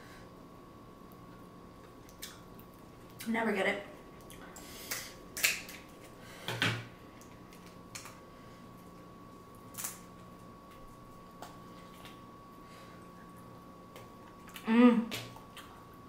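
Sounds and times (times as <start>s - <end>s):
crab shells cracking: 4.9s - 5.9s, 7.3s - 8.2s.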